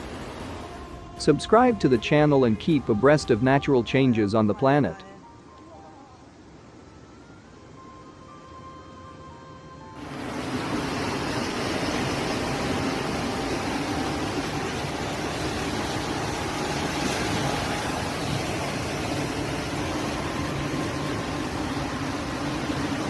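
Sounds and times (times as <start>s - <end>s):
floodwater rushing: 0.0s - 2.9s, 10.0s - 23.0s.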